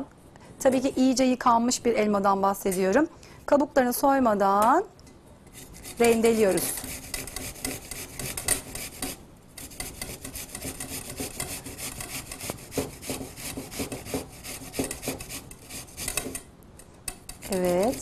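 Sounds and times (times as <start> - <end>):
apple grating rasps: 5.5 - 16.4, 17.1 - 18.0.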